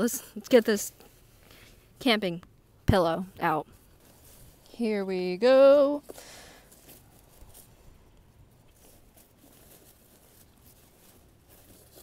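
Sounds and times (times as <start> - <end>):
fabric sack rustling: 3.8 - 4.8, 6.0 - 12.0.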